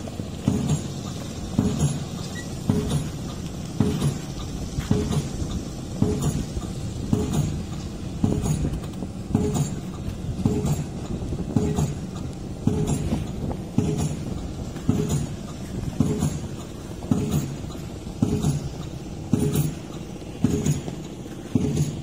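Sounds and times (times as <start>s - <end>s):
heavy machinery clanking: 0.0s - 22.0s.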